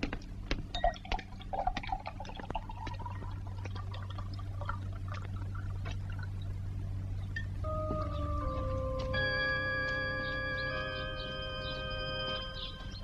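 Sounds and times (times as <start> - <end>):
steady low hum: 0.0 - 13.0
liquid pouring into vessel: 0.8 - 6.6.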